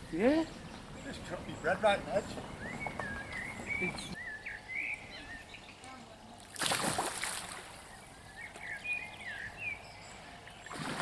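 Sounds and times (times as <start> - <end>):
small birds chirping: 0.0 - 6.6, 7.5 - 11.0
fish splashing in water: 6.5 - 7.9, 10.6 - 11.0.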